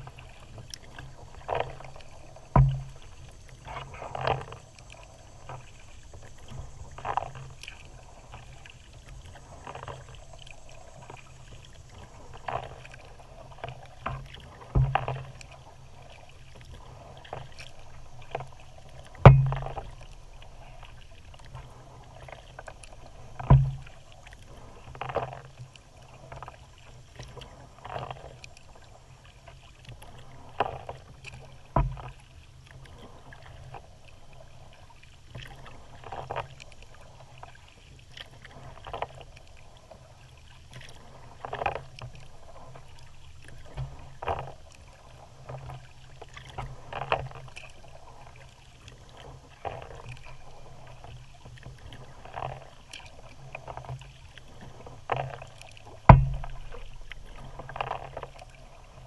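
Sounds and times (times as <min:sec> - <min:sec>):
paddle splashing and dripping: 0:00.0 - 0:59.0
sharp thumps: 0:02.6 - 0:03.0, 0:19.3 - 0:19.8, 0:56.1 - 0:56.8.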